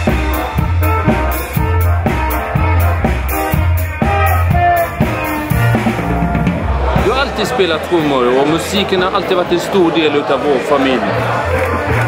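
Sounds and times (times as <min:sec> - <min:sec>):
trumpet melody: 0:00.0 - 0:07.0
drum kit beat with cymbals: 0:00.0 - 0:09.2
bass notes: 0:00.0 - 0:09.6.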